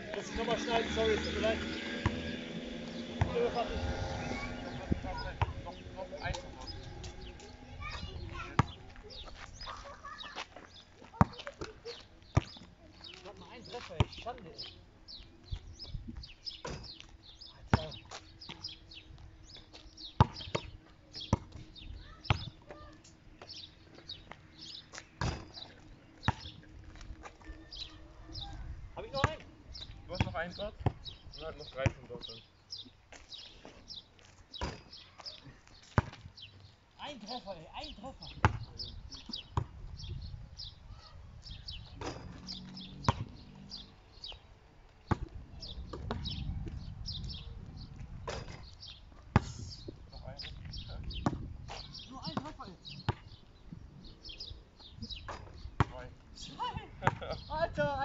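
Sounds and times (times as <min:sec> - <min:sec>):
birds chirping: 0:00.0 - 0:58.0
basketball bouncing on asphalt: 0:01.0 - 0:04.0, 0:05.1 - 0:09.4, 0:10.3 - 0:14.8, 0:16.1 - 0:27.7, 0:29.1 - 0:32.2, 0:34.5 - 0:36.7, 0:38.3 - 0:40.0, 0:41.8 - 0:43.5, 0:44.3 - 0:46.7, 0:48.0 - 0:49.5, 0:50.4 - 0:53.4, 0:55.0 - 0:56.0, 0:57.0 - 0:58.0
basketball bouncing: 0:11.1 - 0:12.6, 0:25.2 - 0:25.7, 0:34.6 - 0:34.9, 0:38.4 - 0:38.6, 0:42.0 - 0:42.5, 0:43.1 - 0:43.4, 0:57.0 - 0:57.3
ball thumping basketball hoop: 0:25.2 - 0:25.7, 0:34.6 - 0:35.0, 0:42.0 - 0:42.5.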